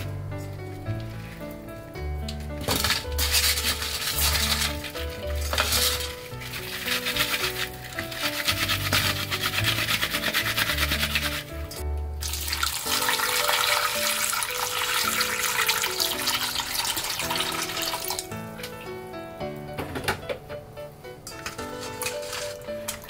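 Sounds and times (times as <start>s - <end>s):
background music: 0.0s - 23.0s
tap water running into bowl: 12.2s - 18.3s.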